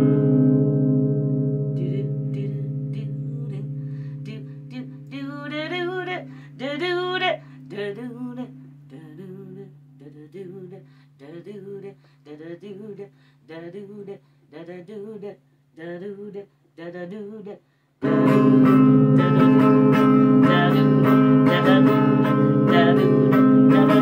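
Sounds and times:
electric guitar chord: 0.0s - 9.6s, 18.0s - 24.0s
woman singing wordlessly with vibrato: 1.6s - 24.0s.

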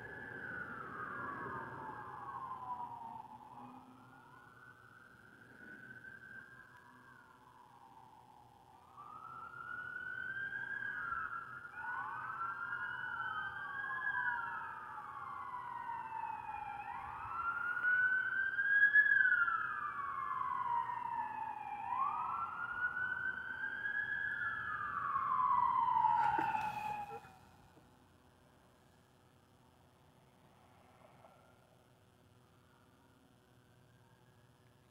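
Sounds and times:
sirens wailing: 0.0s - 27.5s.

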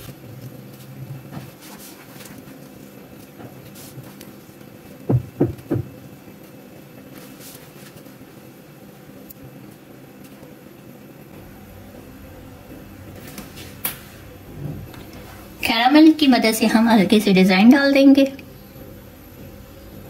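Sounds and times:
faint steady hum: 0.0s - 20.0s
quick dull thumps: 5.1s - 6.0s.

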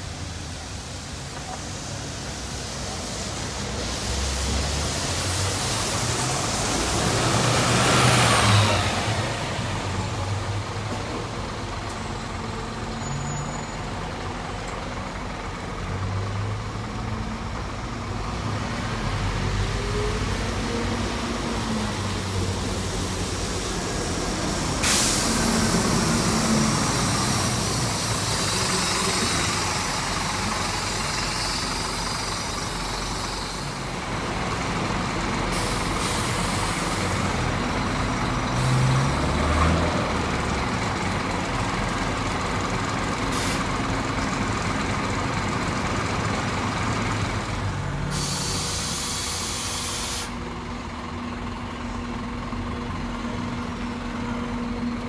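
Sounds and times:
bus passing close by: 0.0s - 55.0s
diesel bus engines: 0.0s - 55.0s
tyre hiss on wet road: 0.1s - 10.0s, 21.1s - 34.5s, 35.4s - 37.8s, 38.4s - 40.3s, 43.1s - 44.2s, 47.4s - 50.5s
air brake hiss: 24.7s - 30.0s, 35.5s - 37.2s, 43.2s - 43.8s, 48.1s - 50.4s.

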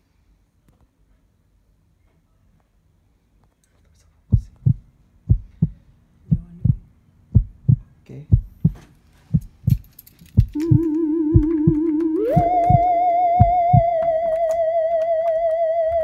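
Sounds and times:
heartbeat thumps: 4.3s - 9.8s, 10.4s - 14.4s.

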